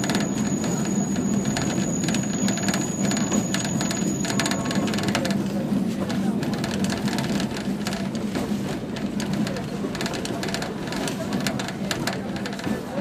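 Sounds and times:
high-pitched wheel squeal: 0.0 - 5.2
train rumbling on track: 0.0 - 13.0
wheels clicking and rattling: 0.0 - 13.0.

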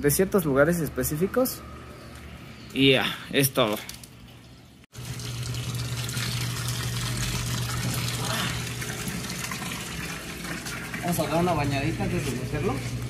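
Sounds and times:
water running: 4.4 - 13.0.

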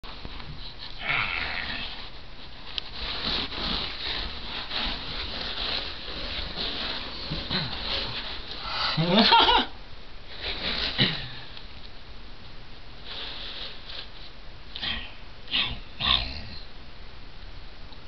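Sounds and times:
hands rustling: 0.0 - 9.6
kitten scuffling on carpet: 1.9 - 8.6.

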